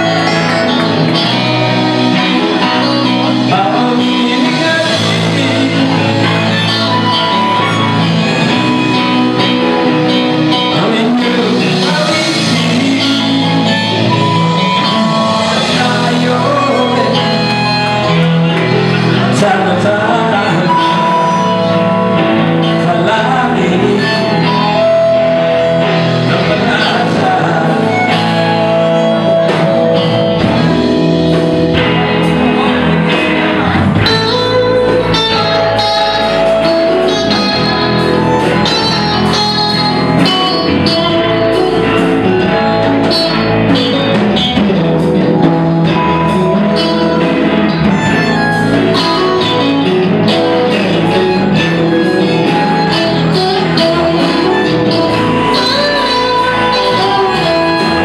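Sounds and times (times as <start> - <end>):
live blues rock band: 0.0 - 58.0.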